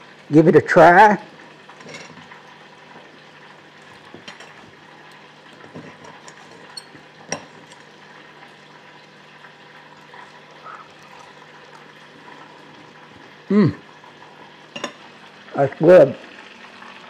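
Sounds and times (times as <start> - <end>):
deep-frying oil sizzle: 0.0 - 17.0
knife and fork on a plate: 1.8 - 2.3, 3.8 - 7.9.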